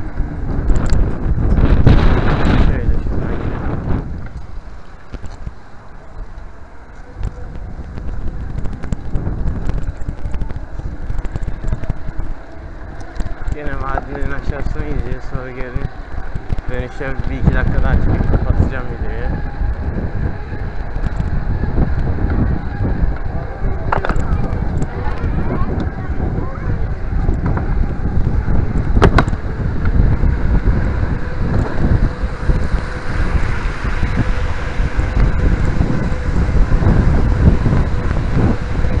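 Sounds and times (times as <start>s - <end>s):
bike rattling clicks and knocks: 0.0s - 2.0s, 7.2s - 18.8s, 19.4s - 26.1s
bicycle rumbling over paving: 0.0s - 39.0s
wind buffeting microphone: 0.0s - 39.0s.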